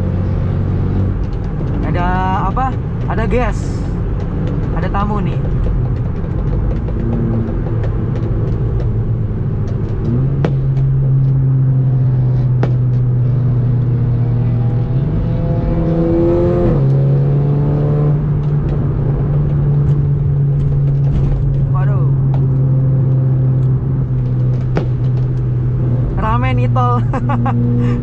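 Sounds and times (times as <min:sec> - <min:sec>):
car engine from inside cabin: 0:00.0 - 0:28.0
road noise: 0:00.0 - 0:28.0.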